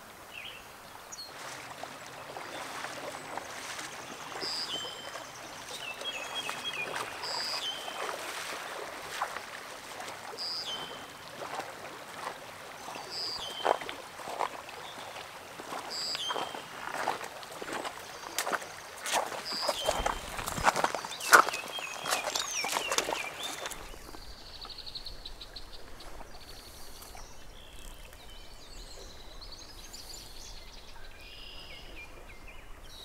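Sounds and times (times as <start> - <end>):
stream running over gravel: 0.0 - 33.0
water sloshing from wading: 1.3 - 30.3
songbird repeating a phrase: 30.9 - 32.0.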